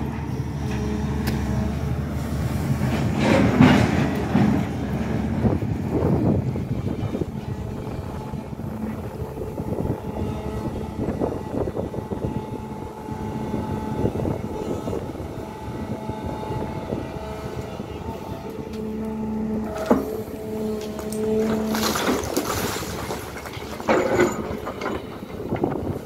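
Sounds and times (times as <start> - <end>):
excavator diesel engine: 0.0 - 26.0
hydraulic whine: 5.4 - 26.0.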